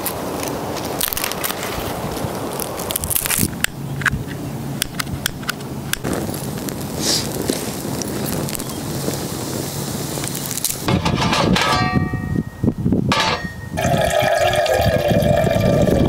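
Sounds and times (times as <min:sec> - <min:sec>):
twigs snapping and crackling: 0:00.0 - 0:09.2, 0:10.2 - 0:10.9
kindling catching fire: 0:00.0 - 0:11.8.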